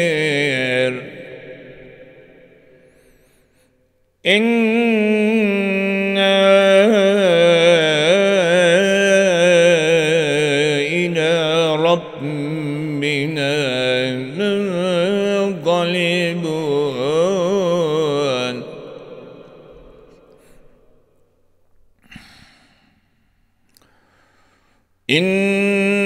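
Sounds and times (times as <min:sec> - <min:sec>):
man chanting recitation: 0:00.0 - 0:02.4, 0:04.2 - 0:20.4, 0:25.1 - 0:26.0.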